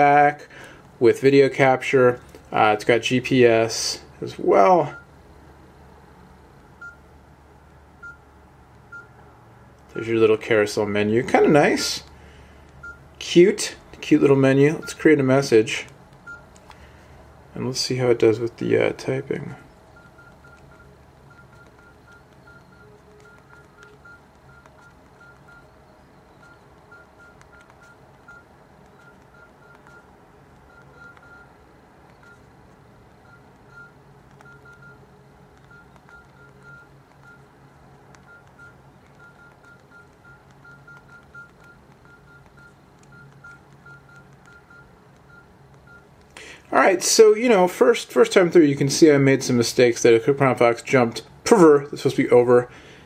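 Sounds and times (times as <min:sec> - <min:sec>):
phone keypress beeps: 0:06.8 - 0:07.0, 0:08.0 - 0:09.1, 0:12.7 - 0:13.1, 0:16.2 - 0:16.5, 0:20.0 - 0:32.5, 0:33.1 - 0:37.5, 0:38.1 - 0:46.2.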